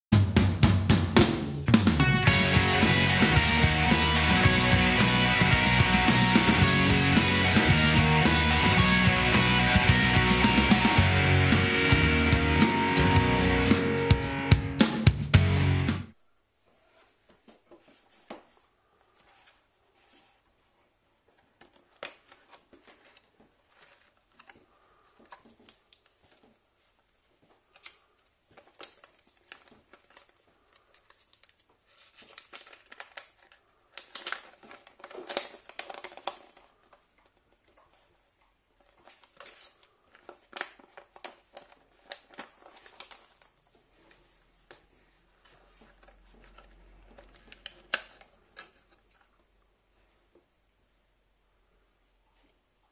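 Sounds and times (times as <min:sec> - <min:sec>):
paper crinkling and rustling: 0:16.7 - 0:49.6.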